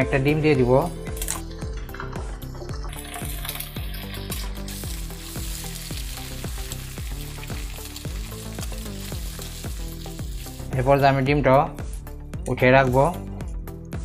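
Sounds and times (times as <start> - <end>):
background music: 0.0 - 14.0
egg sizzling in hot oil: 2.8 - 10.9.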